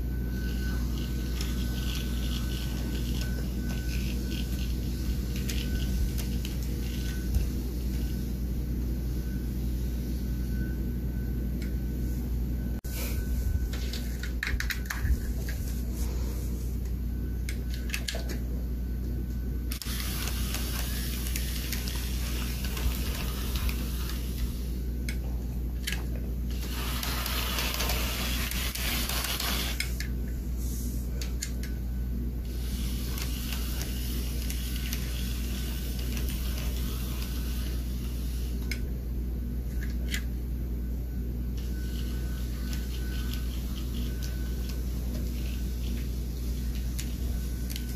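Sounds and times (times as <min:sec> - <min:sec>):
electric motor hum: 0:00.0 - 0:11.3, 0:19.6 - 0:30.9, 0:31.8 - 0:38.9, 0:41.4 - 0:47.9.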